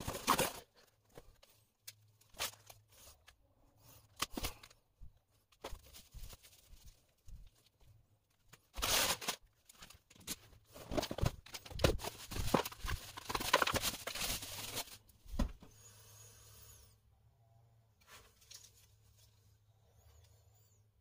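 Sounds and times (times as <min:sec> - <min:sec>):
plastic packaging crinkling: 0:00.0 - 0:01.3, 0:08.5 - 0:15.1.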